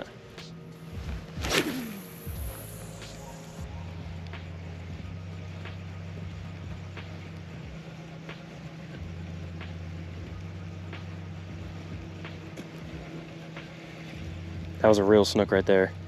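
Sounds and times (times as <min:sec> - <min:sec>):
small motor humming: 0:00.8 - 0:14.5.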